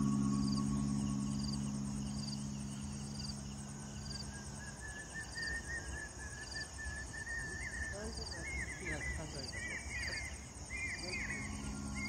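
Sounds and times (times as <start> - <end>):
warbling high trill: 0.0 - 3.8
background music chord: 0.0 - 4.4, 11.0 - 12.0
insects chirping: 0.0 - 12.0.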